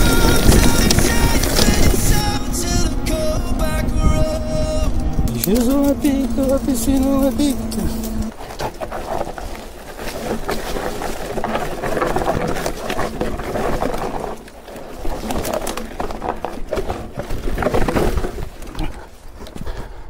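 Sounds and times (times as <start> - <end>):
wind over microphone: 0.0 - 9.6
bike rattling over bumps: 0.0 - 20.0
tyre noise on dirt: 0.0 - 20.0.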